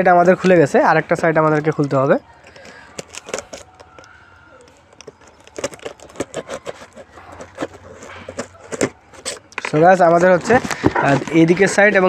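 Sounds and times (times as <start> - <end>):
packing tape tearing: 2.4 - 11.6.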